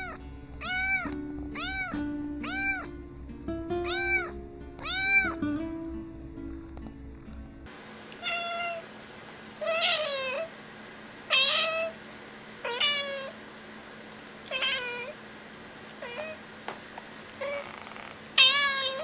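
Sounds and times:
cat meowing: 0:00.0 - 0:03.0, 0:03.8 - 0:05.4, 0:08.2 - 0:08.8, 0:09.6 - 0:10.5, 0:11.3 - 0:12.0, 0:12.6 - 0:13.4, 0:14.5 - 0:15.2, 0:16.0 - 0:16.4, 0:17.4 - 0:19.0.

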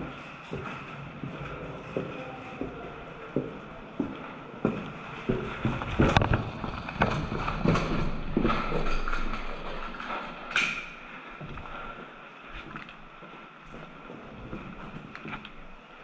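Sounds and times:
footsteps on concrete: 0:00.4 - 0:08.7, 0:11.4 - 0:15.8.

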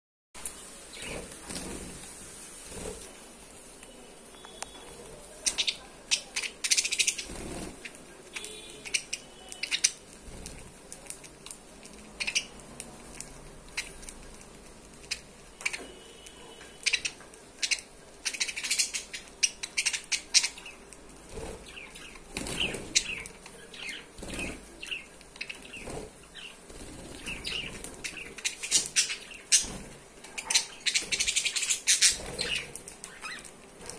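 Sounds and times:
budgerigars chirping: 0:05.4 - 0:10.0, 0:12.2 - 0:12.5, 0:16.8 - 0:20.8, 0:21.6 - 0:33.5.

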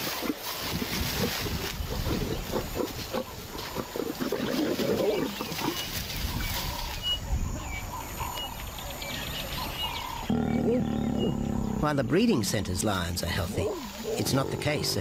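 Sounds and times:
lions growling and snarling: 0:00.0 - 0:06.9, 0:10.0 - 0:11.9, 0:13.3 - 0:15.0.

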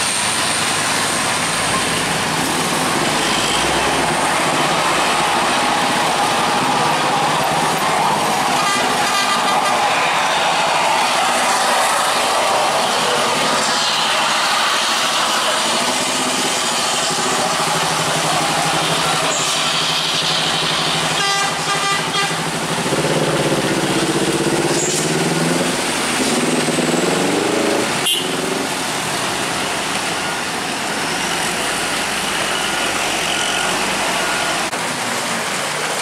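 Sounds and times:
heavy truck engines labouring: 0:00.0 - 0:36.0
rain and tyres hiss: 0:00.0 - 0:36.0
vehicle horn: 0:08.4 - 0:10.2, 0:21.1 - 0:22.5, 0:28.0 - 0:28.6.

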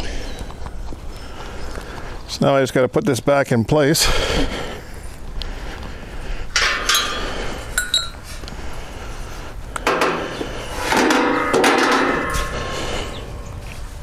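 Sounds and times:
steel bars clinking and clanking: 0:06.5 - 0:08.3.

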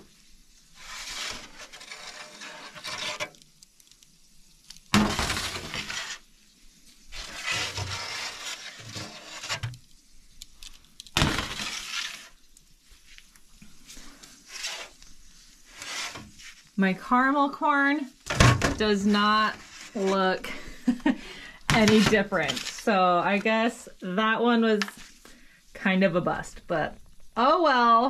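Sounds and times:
metal trays scraping and clattering: 0:00.8 - 0:03.4, 0:05.0 - 0:06.2, 0:07.2 - 0:09.8, 0:11.2 - 0:12.3, 0:21.7 - 0:22.9.

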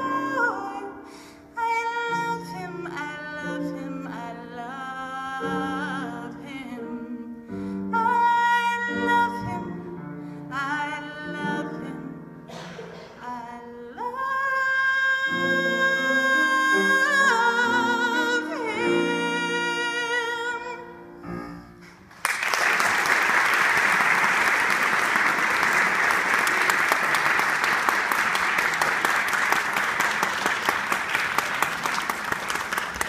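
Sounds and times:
audience applause: 0:22.1 - 0:33.0.

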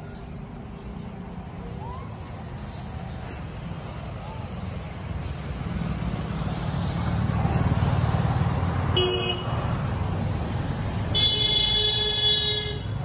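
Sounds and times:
low rumble of traffic: 0:00.0 - 0:13.0
vehicle horn toots: 0:08.9 - 0:09.6, 0:11.1 - 0:13.0.

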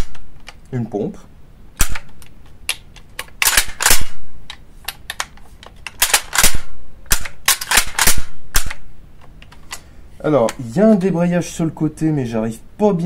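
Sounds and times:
shotgun pump racking clacks: 0:01.8 - 0:04.1, 0:04.9 - 0:08.8.

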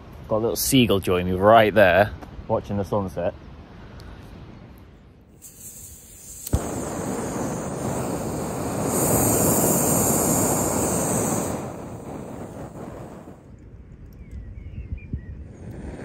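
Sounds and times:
gas rushing through burner: 0:05.3 - 0:13.6, 0:15.5 - 0:16.0.

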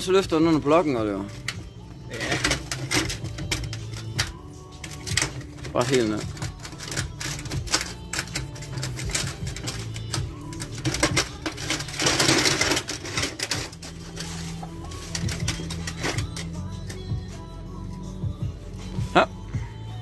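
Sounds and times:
scissor jack clicking and clanking: 0:02.2 - 0:14.3, 0:14.9 - 0:17.0
rough metal scrape: 0:11.6 - 0:16.5.

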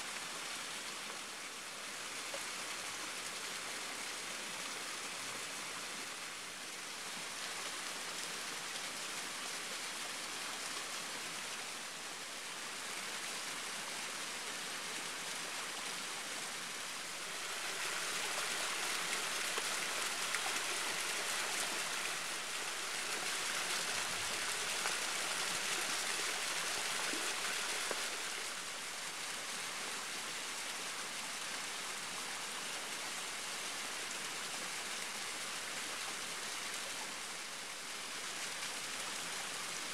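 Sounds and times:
waterfall rushing: 0:17.1 - 0:28.9.

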